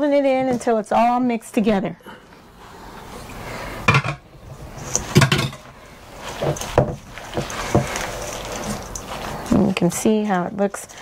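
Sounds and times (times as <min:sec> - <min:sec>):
wet mixture being folded: 0:05.8 - 0:10.9.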